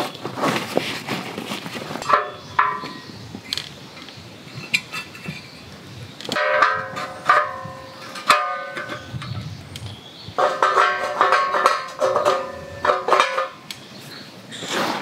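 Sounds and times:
metal stand clicking and knocking: 2.0s - 13.8s.

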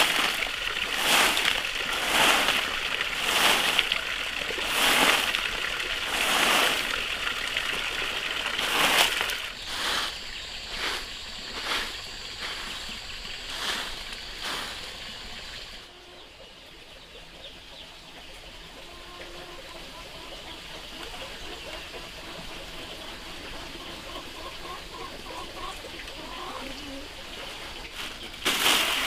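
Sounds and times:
broom sweeping concrete: 0.0s - 7.6s, 8.4s - 15.6s, 27.9s - 29.0s.

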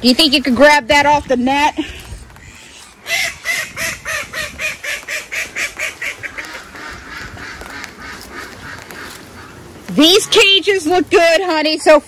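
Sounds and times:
duck quacking: 2.4s - 10.5s.

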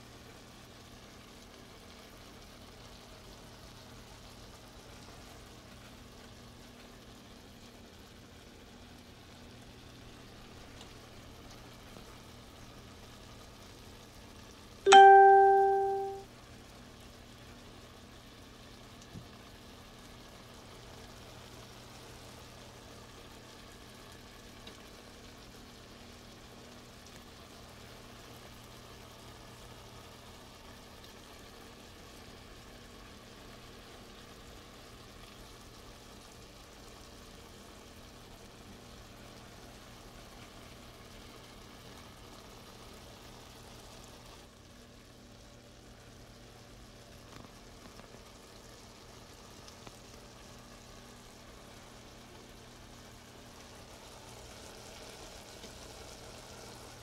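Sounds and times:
sauce sizzling in wok: 0.0s - 57.0s
loud ding: 14.9s - 16.2s.

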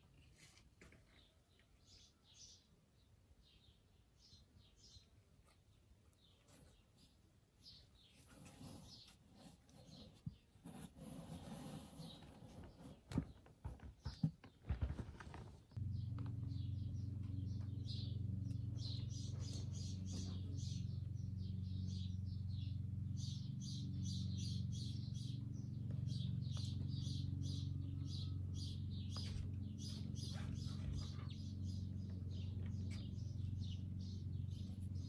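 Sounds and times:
small birds chirping: 0.0s - 35.0s
steady low hum: 15.7s - 35.0s.

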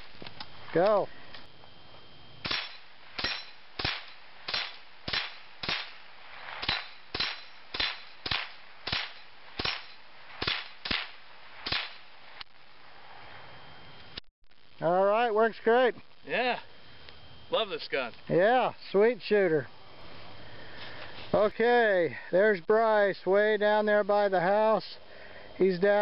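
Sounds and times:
rifle shots: 2.4s - 12.1s.

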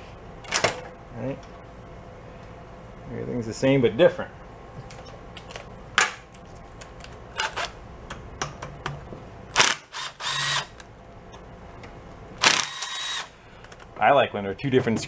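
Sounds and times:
cordless power driver spinning: 9.6s - 10.8s, 12.4s - 13.3s.

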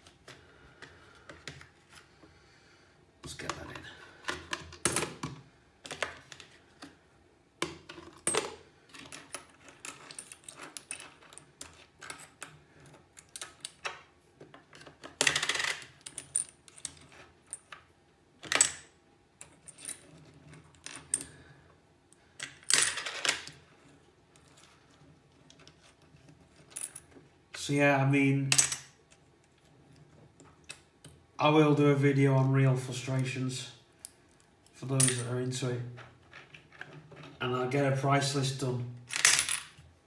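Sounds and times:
coins clinking: 39.1s - 39.7s.

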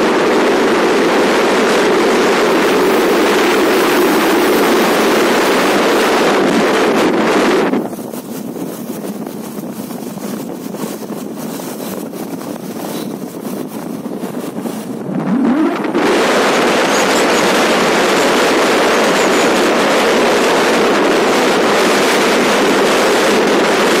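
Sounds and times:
vehicle road noise: 0.0s - 24.0s
wind rushing over microphone: 0.0s - 24.0s
rising engine note: 15.1s - 16.2s.

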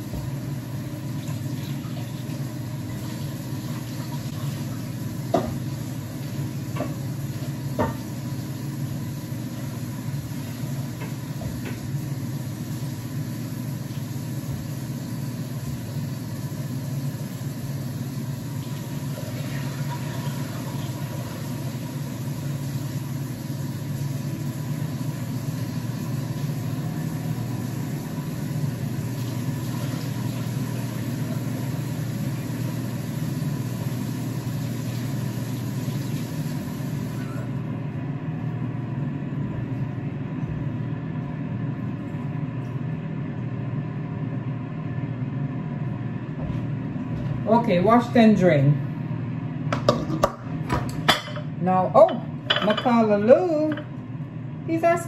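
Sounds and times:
tap running into sink: 7.7s - 8.2s.

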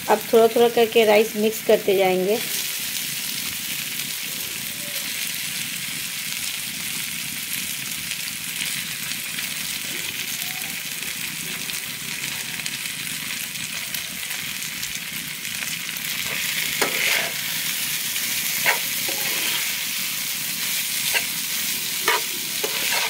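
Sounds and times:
rice sizzling in a pan: 0.0s - 23.0s
metal spatula scraping a pan: 16.2s - 23.0s.

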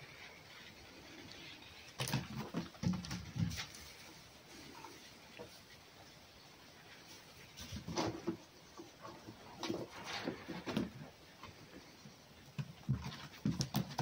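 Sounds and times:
animals scuffling on straw: 3.3s - 12.4s.

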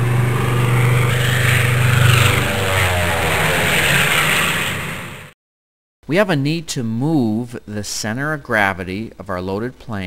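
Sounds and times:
propeller airplane flying past: 0.0s - 5.4s.

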